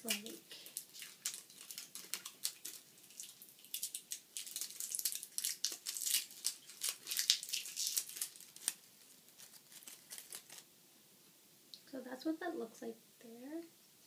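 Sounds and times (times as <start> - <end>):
plastic packaging crinkling and tearing: 0.0 - 10.7.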